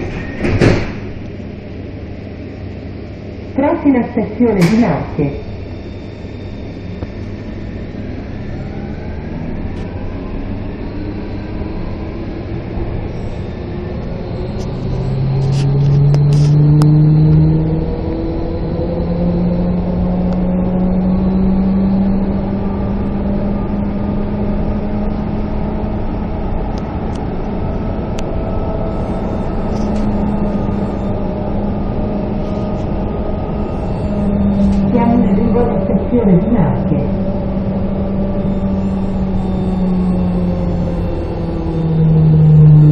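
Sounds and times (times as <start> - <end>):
train rail rumble: 0.0 - 42.9
electric motor whine: 28.8 - 35.8, 37.4 - 42.9.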